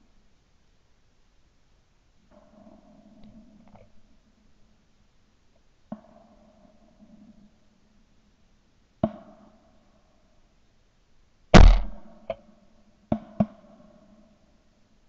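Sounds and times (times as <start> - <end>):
shotgun shot: 11.6 - 12.2
quieter sharp cracks: 11.6 - 12.4.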